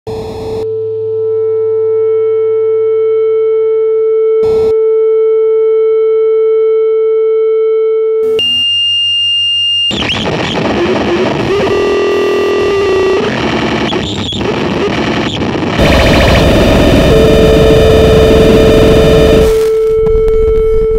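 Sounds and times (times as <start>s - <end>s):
electronic drone tone: 8.3s - 20.9s
harsh distorted noise: 9.9s - 19.8s.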